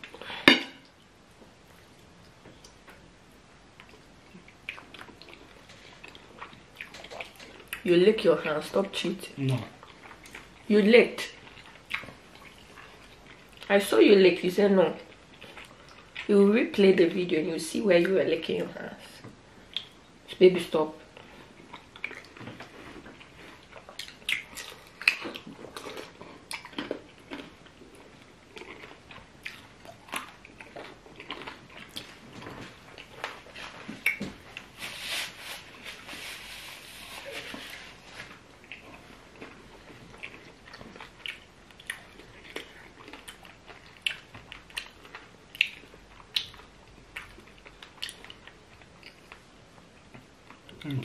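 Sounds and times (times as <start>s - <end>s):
people chewing: 15.0s - 16.3s, 21.1s - 34.8s, 36.1s - 51.0s.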